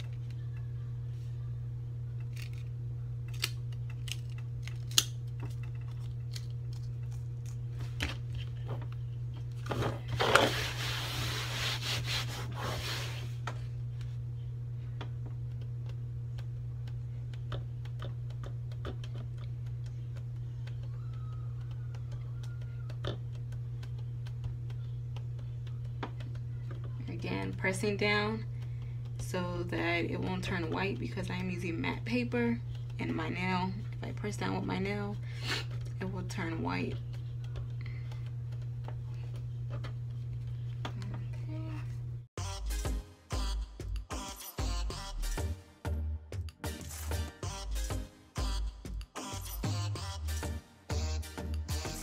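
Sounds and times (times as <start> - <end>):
low hum: 0.0 - 11.6, 12.2 - 42.3
paper rubbing: 10.2 - 13.4.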